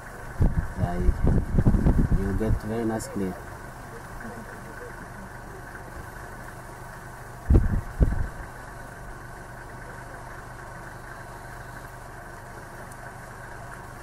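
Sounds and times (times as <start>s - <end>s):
vehicle engine idling: 0.0s - 14.0s.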